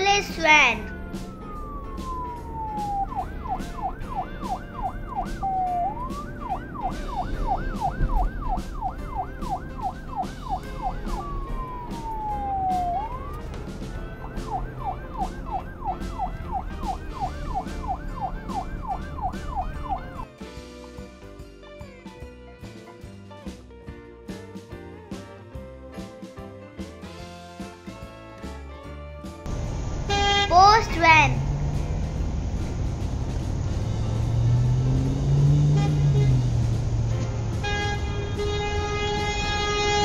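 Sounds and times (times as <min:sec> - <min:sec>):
background music with beat: 0:00.9 - 0:29.8
toy electronic siren wailing: 0:01.8 - 0:13.4, 0:14.0 - 0:20.2.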